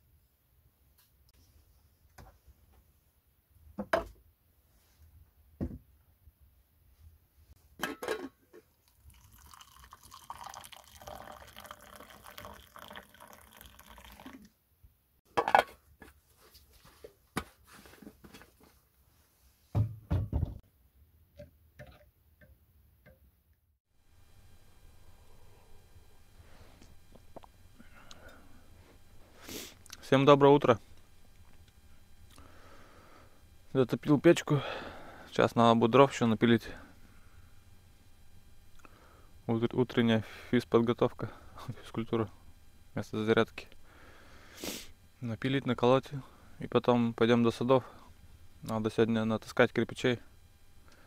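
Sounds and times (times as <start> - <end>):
hot water pouring into mug: 8.8 - 14.5
spoon stirring in mug: 9.1 - 14.3
dull thump: 19.7 - 20.6.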